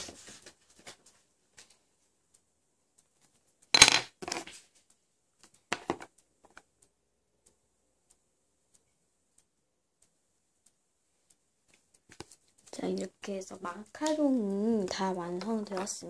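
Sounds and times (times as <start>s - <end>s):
craft tools clacking on a desk: 3.8s - 4.5s
faint ticks: 4.8s - 14.2s.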